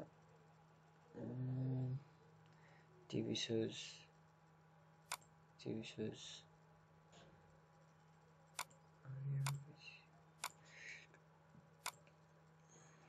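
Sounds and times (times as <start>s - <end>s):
faint electrical hum: 0.0s - 13.0s
low hum: 6.3s - 13.0s
computer mouse clicks: 10.4s - 10.6s, 11.8s - 12.2s.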